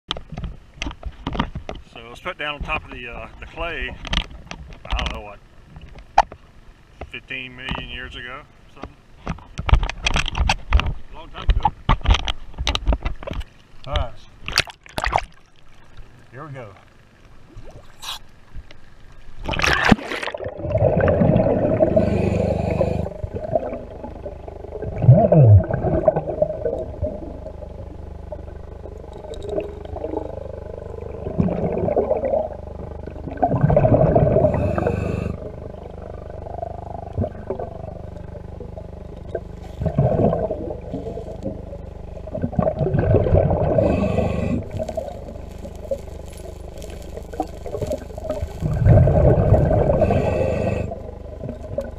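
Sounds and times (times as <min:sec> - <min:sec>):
low underwater rumbling: 0:14.3 - 0:51.9
sharp splash: 0:19.4 - 0:21.3
hands fanning sand underwater: 0:42.6 - 0:50.9.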